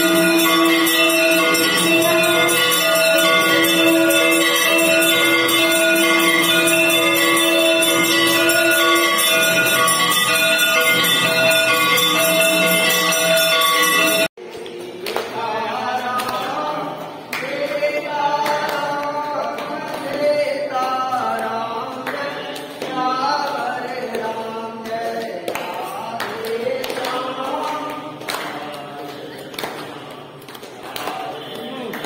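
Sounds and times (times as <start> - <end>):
crowd singing a hymn: 14.5 - 32.0.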